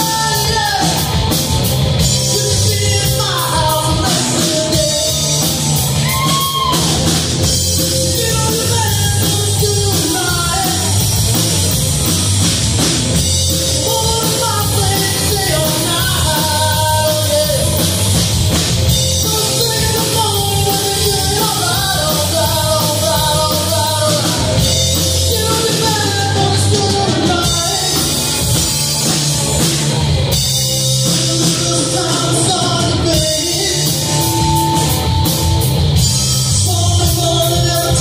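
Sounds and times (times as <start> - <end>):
male singer: 0.0 - 1.2, 2.1 - 7.0, 7.7 - 11.2, 13.5 - 18.1, 18.9 - 28.5, 31.0 - 34.4, 36.4 - 38.0
drum kit: 0.0 - 38.0
electric bass: 0.0 - 38.0
electric guitar: 0.0 - 38.0.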